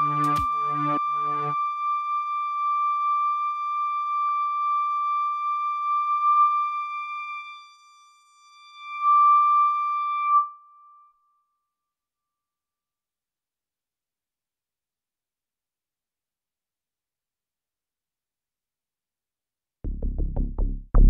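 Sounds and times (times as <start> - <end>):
electronic beat and bassline: 0.0 - 0.6.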